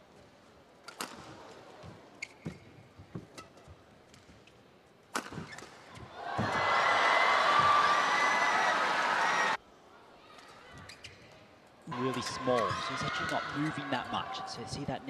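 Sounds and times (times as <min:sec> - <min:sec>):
shoe squeak: 0:02.2 - 0:02.9, 0:10.8 - 0:11.3
crowd cheering and clapping: 0:06.2 - 0:09.6.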